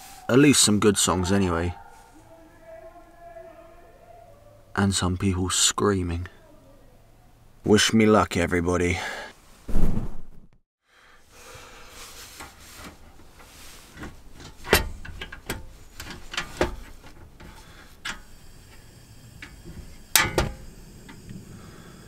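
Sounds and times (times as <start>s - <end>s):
loud thump: 9.7s - 10.4s
clicks knocks and rubbing: 12.3s - 18.3s.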